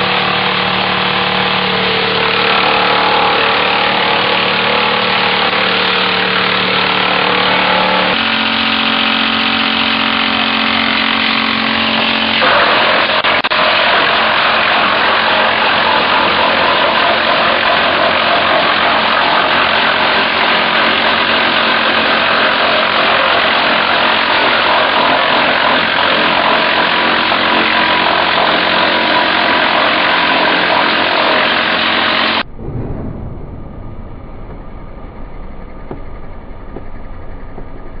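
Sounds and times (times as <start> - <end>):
low machine rumble: 0.0 - 20.5, 32.4 - 38.0
wood chipper grinding: 0.0 - 32.5.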